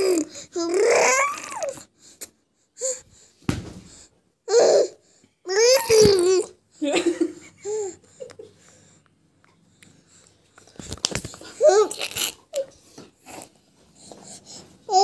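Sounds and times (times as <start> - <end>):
baby babbling and laughing: 0.0 - 1.8, 4.5 - 6.6, 11.6 - 13.5.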